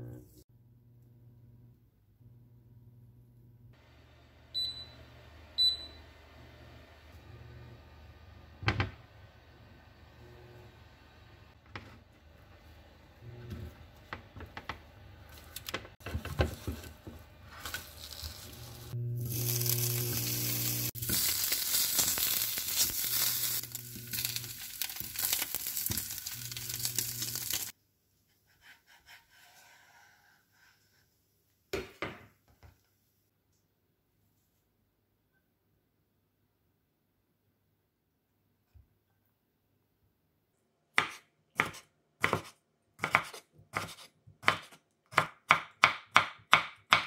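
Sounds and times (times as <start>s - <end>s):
meat sizzling in a pan: 17.7s - 27.7s.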